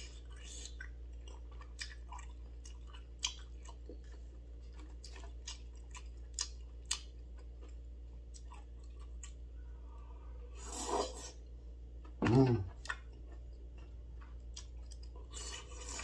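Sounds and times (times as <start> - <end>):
chewing: 0.0 - 9.7, 12.0 - 16.0
slurping from a bowl: 10.5 - 11.4.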